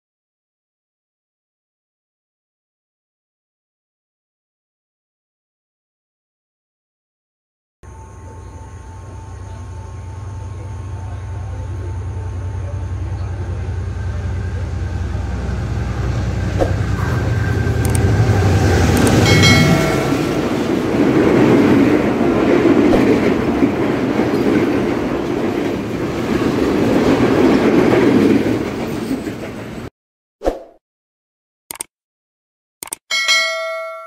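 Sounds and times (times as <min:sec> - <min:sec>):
high ringing tone: 0:07.8 - 0:14.3, 0:19.0 - 0:20.6, 0:33.1 - 0:34.0
locomotive engine rumble: 0:07.9 - 0:29.9
train wheels on rails: 0:09.0 - 0:29.9.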